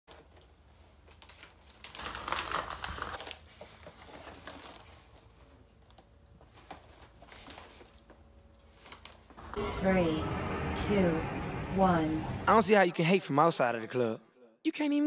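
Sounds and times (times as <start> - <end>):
plastic and cardboard crinkling: 0.1 - 9.3.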